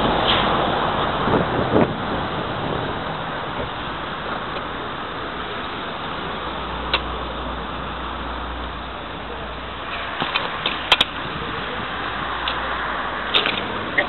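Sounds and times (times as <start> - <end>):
street traffic noise: 0.0 - 14.0.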